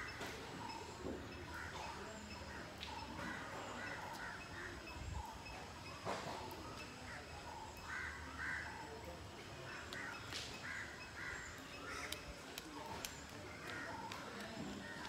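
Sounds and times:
crows cawing: 1.4s - 4.9s, 7.8s - 9.0s, 9.6s - 15.0s
faint clicks: 9.7s - 15.0s.

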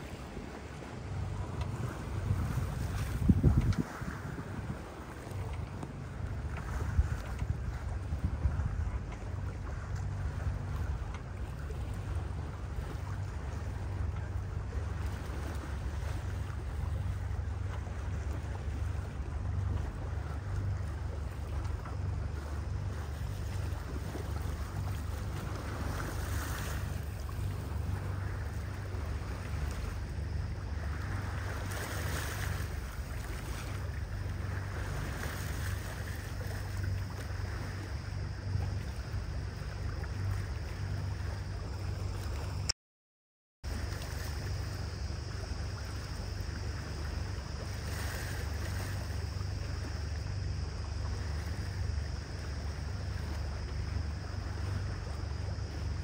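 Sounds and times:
boat engine drone: 0.0s - 42.7s, 43.7s - 56.0s
water rushing past hull: 0.0s - 42.7s, 43.6s - 56.0s
wind on microphone: 0.0s - 42.7s.

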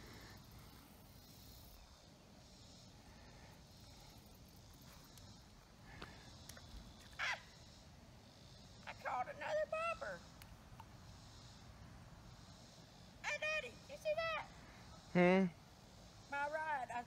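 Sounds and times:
faint ticks: 3.5s - 7.2s, 10.3s - 11.5s.

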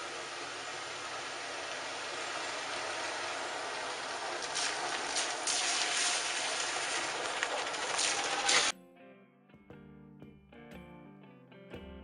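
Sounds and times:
outdoor background hiss: 0.0s - 8.7s.

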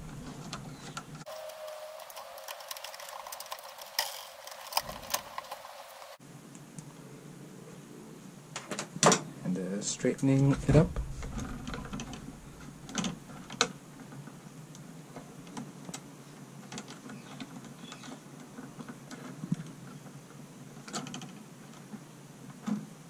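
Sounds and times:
pliers clicking and scraping wire: 1.7s - 5.7s.

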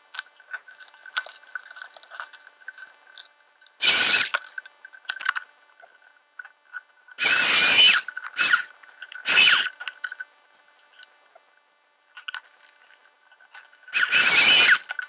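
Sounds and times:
plunge saw cutting board: 3.8s - 4.4s, 7.2s - 9.7s, 13.9s - 14.9s.

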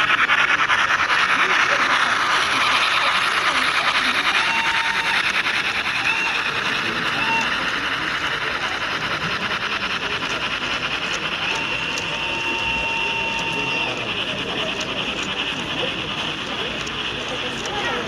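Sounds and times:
model train wheels clicking: 0.0s - 18.0s
steady high tone: 11.1s - 15.9s.

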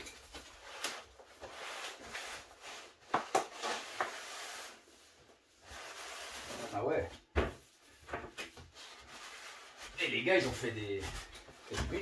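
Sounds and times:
cardboard rustling and sliding: 0.2s - 7.1s.

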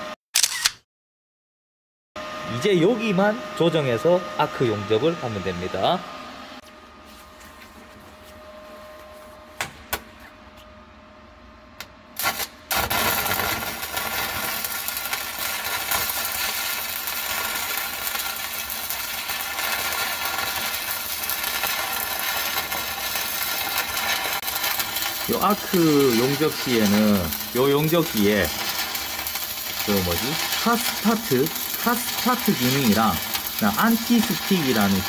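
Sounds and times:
short clicks: 0.4s - 0.9s
welding arc crackling sizzle: 11.8s - 35.0s.

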